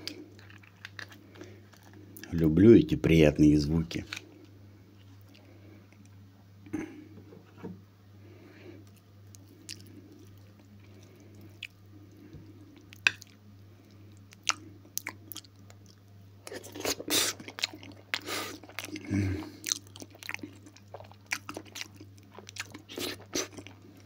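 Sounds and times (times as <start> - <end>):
chewing food: 0.0 - 2.5, 8.8 - 24.0.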